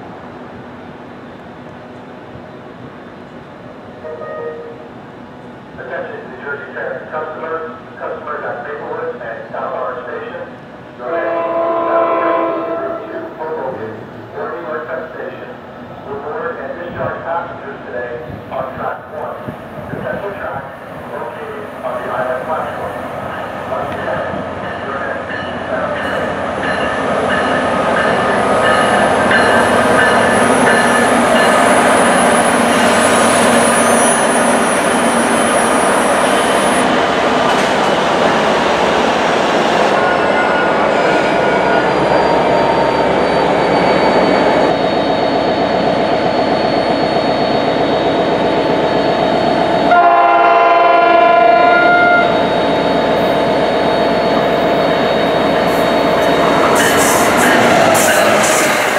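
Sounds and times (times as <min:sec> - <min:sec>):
train rumbling past: 0:00.0 - 0:58.9
train horn: 0:04.0 - 0:04.8, 0:11.0 - 0:13.4, 0:49.9 - 0:52.4.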